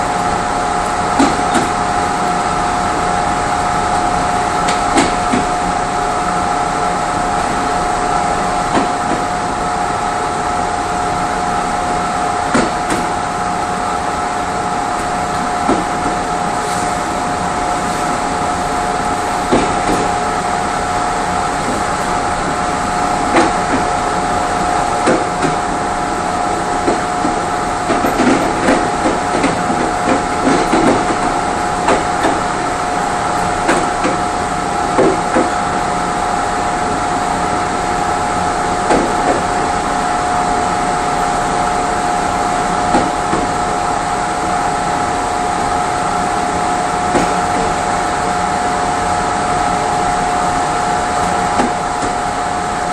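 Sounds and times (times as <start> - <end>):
train cabin hum: 0.0 - 52.9
train wheels clacking over rail joints: 26.8 - 32.5.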